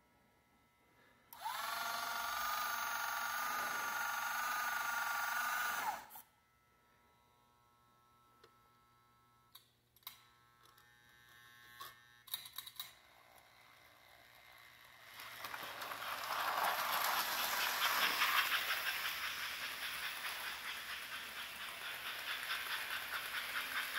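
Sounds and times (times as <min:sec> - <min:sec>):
model steam locomotive hissing: 0:15.2 - 0:23.9.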